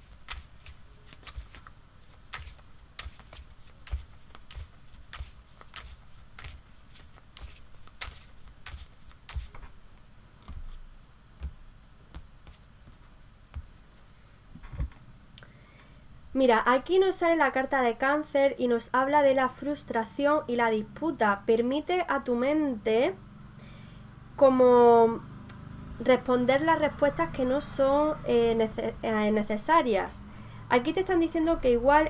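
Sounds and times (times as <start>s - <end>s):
cards shuffled by hand: 0.0s - 10.8s.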